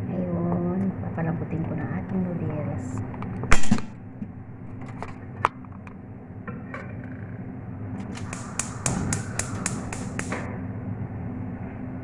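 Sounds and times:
low hum: 0:00.0 - 0:12.0
gas igniter clicking: 0:08.0 - 0:10.5
knocks: 0:08.0 - 0:10.5.

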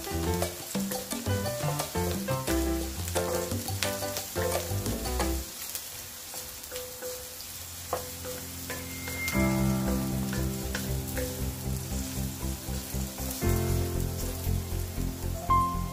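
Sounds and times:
background music: 0:00.0 - 0:05.5, 0:08.0 - 0:15.9
onion sizzling in a wok: 0:00.0 - 0:15.9
spatula scraping and knocking pan: 0:07.9 - 0:13.4.

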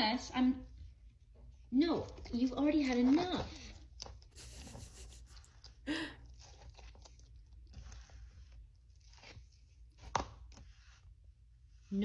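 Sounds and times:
lizard chewing crunchy food: 0:02.8 - 0:10.3.

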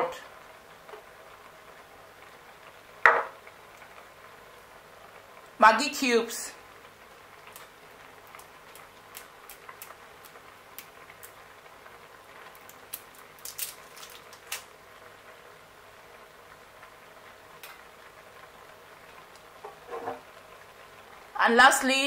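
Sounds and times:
low steady hiss: 0:00.0 - 0:22.0
cooking pot ticks and pops: 0:07.4 - 0:11.5, 0:12.5 - 0:14.7, 0:17.6 - 0:17.9.

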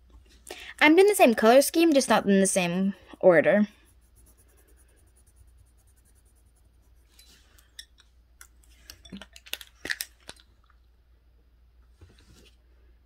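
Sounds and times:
colored pencils scratching on paper: 0:03.7 - 0:07.5.

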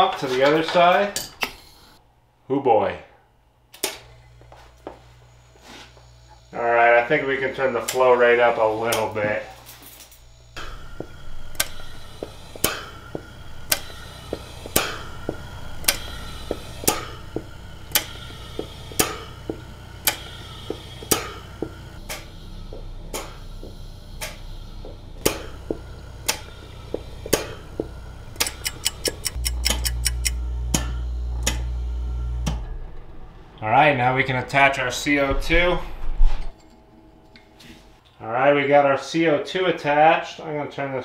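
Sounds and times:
compressor pump humming: 0:00.0 - 0:02.3, 0:03.2 - 0:38.1
relays and valves clicking: 0:07.6 - 0:31.8.

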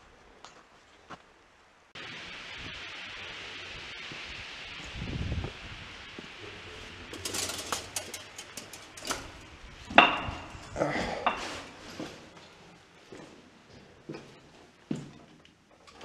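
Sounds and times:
footsteps: 0:06.1 - 0:15.3
metal and debris clattering: 0:07.1 - 0:10.7.

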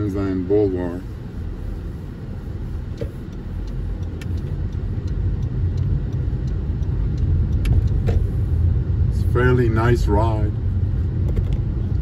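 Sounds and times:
car engine and tyre rumble: 0:00.0 - 0:12.0
faint ticks: 0:02.9 - 0:08.0.

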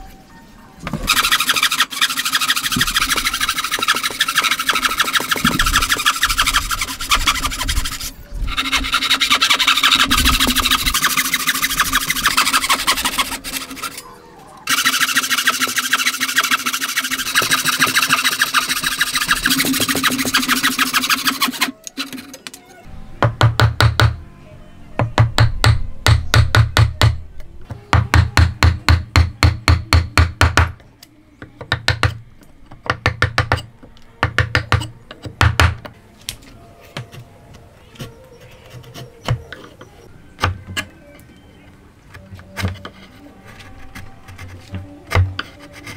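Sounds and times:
hand saw cutting wood: 0:01.0 - 0:14.0, 0:14.7 - 0:22.4
chisel tapping: 0:31.6 - 0:32.2, 0:32.8 - 0:35.9.

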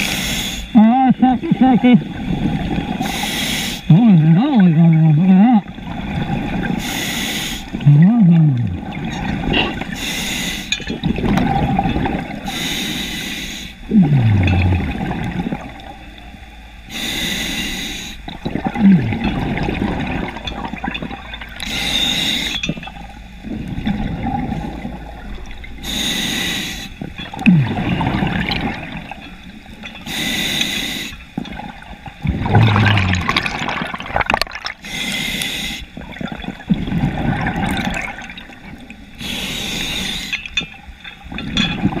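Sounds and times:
hissing regulator inhale: 0:00.0 - 0:00.7, 0:03.0 - 0:03.9, 0:06.6 - 0:07.8, 0:09.5 - 0:10.8, 0:12.4 - 0:13.9, 0:16.9 - 0:18.3, 0:21.6 - 0:22.8, 0:25.8 - 0:27.2, 0:30.0 - 0:31.3, 0:34.8 - 0:36.0, 0:39.2 - 0:40.6
bubbling exhaust: 0:13.9 - 0:16.0, 0:27.0 - 0:29.2, 0:31.4 - 0:34.9.

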